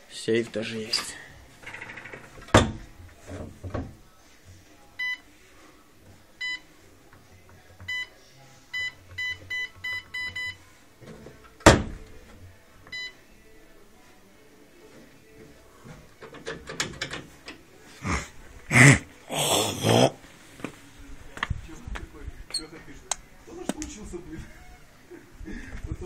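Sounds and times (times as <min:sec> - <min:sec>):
loud thud against door: 0:02.5 - 0:02.8, 0:11.6 - 0:12.0.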